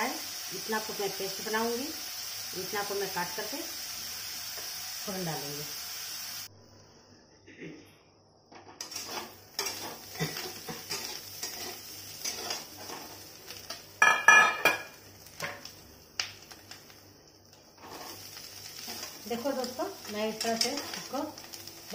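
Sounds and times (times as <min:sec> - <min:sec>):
light sizzle: 0:00.0 - 0:07.0, 0:08.5 - 0:21.9
metal spatula scraping steel pan: 0:08.8 - 0:10.0, 0:10.9 - 0:13.0.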